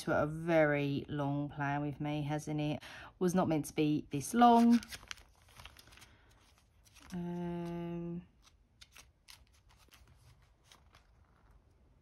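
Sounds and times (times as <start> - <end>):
plastic sleeves clicking and rustling: 4.6 - 11.9.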